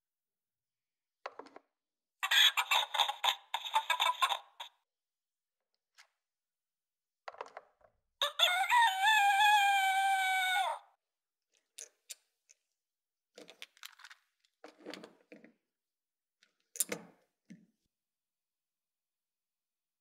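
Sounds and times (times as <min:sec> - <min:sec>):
wooden toy clicks and knocks: 0:01.3 - 0:01.6, 0:07.3 - 0:08.0
electronic rooster crow: 0:08.2 - 0:10.8.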